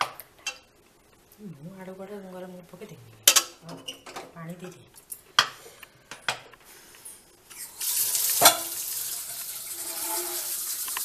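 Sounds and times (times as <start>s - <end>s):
loud sizzling hiss: 7.5s - 11.0s.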